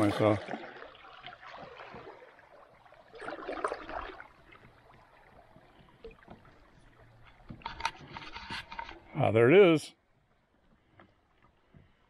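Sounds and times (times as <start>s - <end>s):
river water swishing around kayak: 0.0s - 12.0s.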